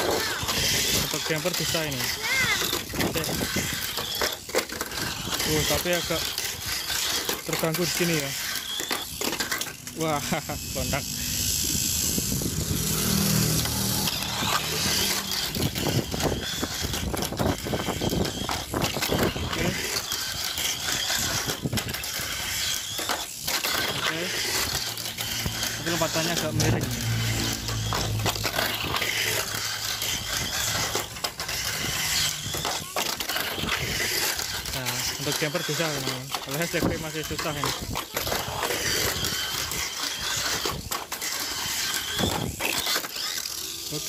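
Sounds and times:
small electric motor whirring: 0:00.0 - 0:44.0
toy car rattling on track: 0:00.0 - 0:44.0.

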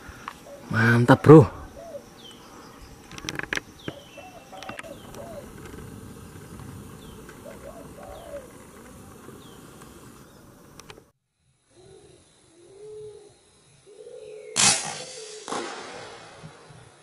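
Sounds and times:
dove cooing: 0:00.0 - 0:02.4, 0:03.8 - 0:10.0, 0:11.8 - 0:14.6
bird chirping: 0:00.1 - 0:10.9.

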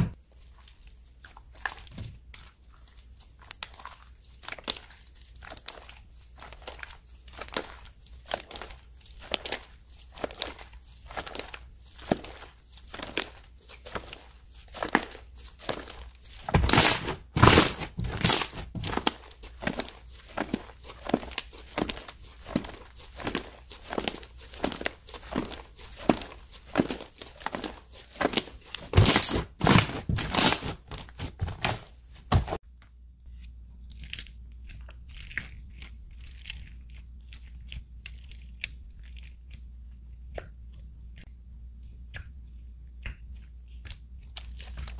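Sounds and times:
slime crackling and popping: 0:00.0 - 0:31.8.

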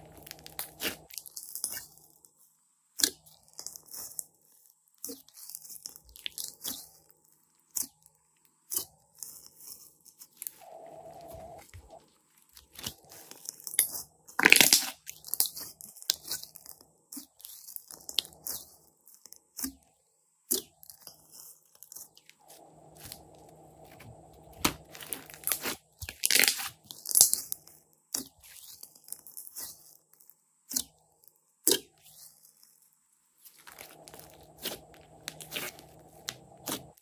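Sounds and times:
slime squelching and crackling: 0:00.0 - 0:02.4, 0:03.0 - 0:19.9, 0:20.5 - 0:31.0, 0:31.6 - 0:37.0.

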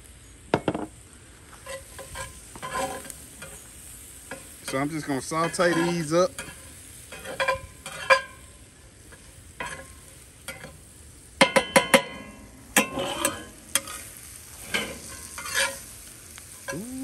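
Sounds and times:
low sizzle of frying: 0:00.0 - 0:17.0
metal spatula scraping skillet: 0:01.6 - 0:03.6, 0:05.4 - 0:08.5, 0:09.1 - 0:09.9, 0:12.8 - 0:15.9.

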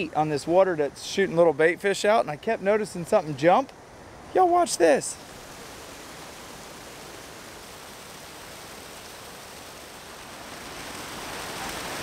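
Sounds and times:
water rushing over spillway: 0:04.2 - 0:12.0.

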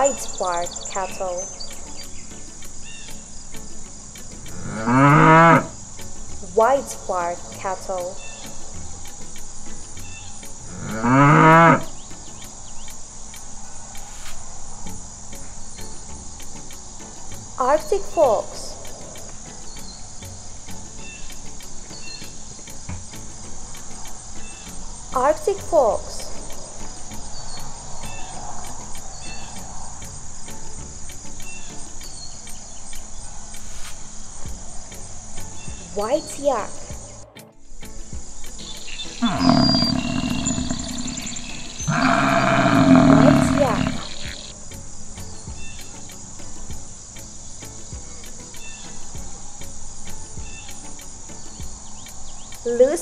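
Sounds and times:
crickets chirring: 0:00.0 - 0:53.0
cow mooing: 0:04.6 - 0:05.8, 0:10.7 - 0:11.9, 0:39.2 - 0:44.5.

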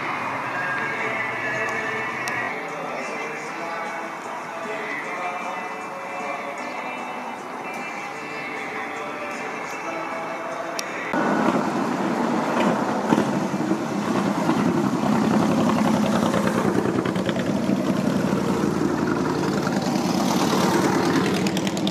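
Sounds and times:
car engine idling: 0:11.1 - 0:21.9.

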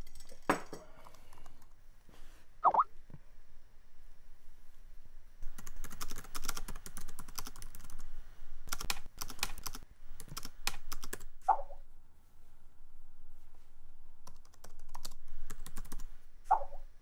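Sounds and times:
fast typing on keyboard: 0:00.0 - 0:01.6, 0:05.4 - 0:08.0, 0:08.7 - 0:11.2, 0:14.3 - 0:16.1.

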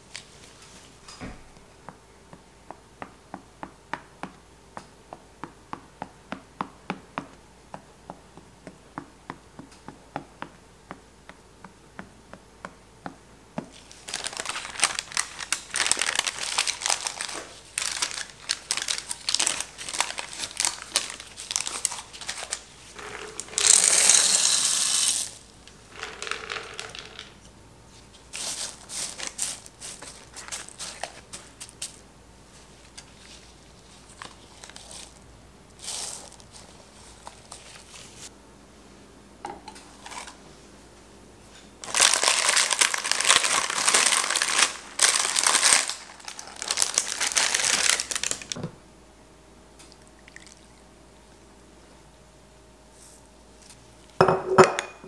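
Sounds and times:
parchment paper crinkling: 0:13.7 - 0:25.4, 0:28.1 - 0:32.0, 0:32.6 - 0:35.2, 0:41.8 - 0:48.6
dried beans pouring: 0:23.0 - 0:27.3, 0:35.8 - 0:36.5.

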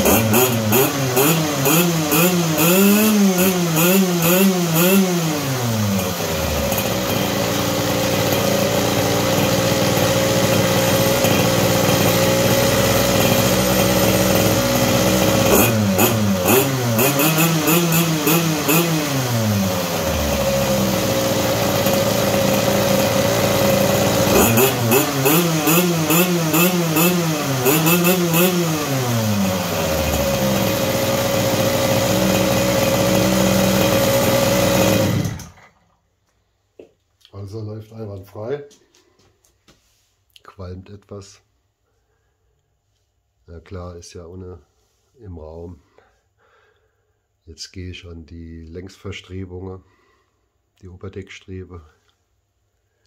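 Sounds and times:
small engine revving and idling: 0:00.0 - 0:36.0.

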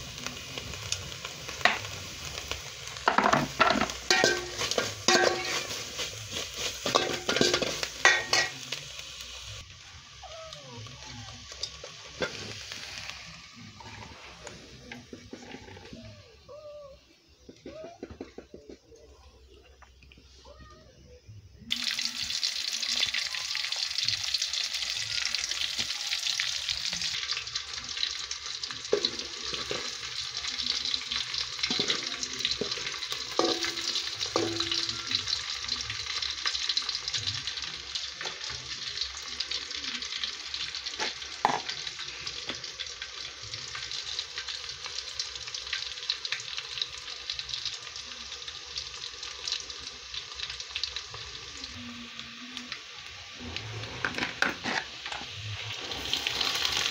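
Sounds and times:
onions sizzling in hot oil: 0:00.0 - 0:18.4, 0:21.6 - 0:56.9
oil popping: 0:01.6 - 0:08.6, 0:31.2 - 0:37.5, 0:38.1 - 0:44.9.

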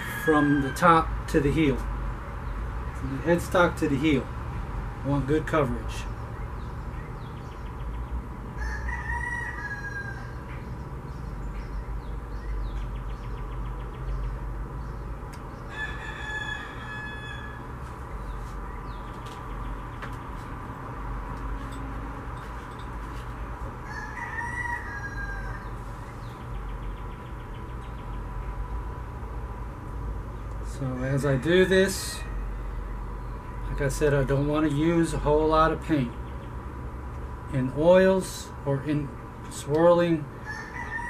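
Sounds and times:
rooster crowing: 0:00.0 - 0:01.1, 0:08.6 - 0:10.5, 0:15.7 - 0:17.9, 0:23.8 - 0:25.9, 0:30.9 - 0:33.7, 0:40.4 - 0:41.0
low background hum: 0:00.0 - 0:41.0.

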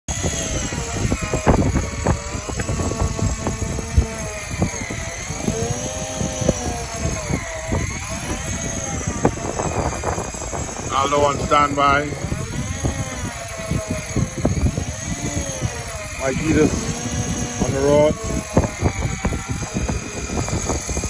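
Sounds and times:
fishing reel motor whining: 0:00.1 - 0:21.0
gusty low rumble: 0:00.1 - 0:21.0.

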